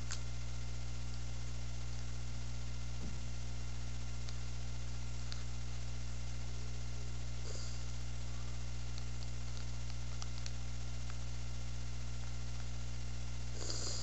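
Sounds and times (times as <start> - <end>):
low electrical hum: 0.0 - 14.0
even hiss: 7.4 - 7.9, 13.5 - 14.0.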